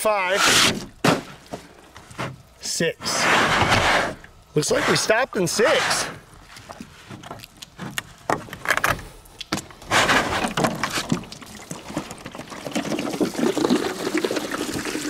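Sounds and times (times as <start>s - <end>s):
water pouring and splashing: 10.0s - 15.0s.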